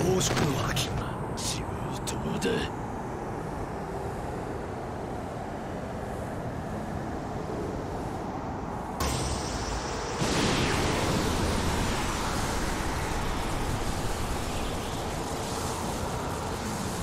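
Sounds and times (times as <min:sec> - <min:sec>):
loud rushing shockwave noise: 0:09.0 - 0:17.0.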